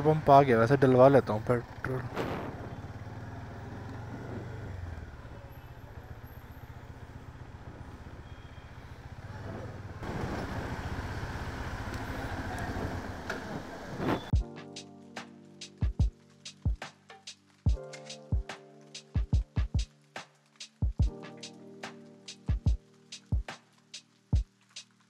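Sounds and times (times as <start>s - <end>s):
motorcycle engine running at low revs: 0.0s - 14.4s.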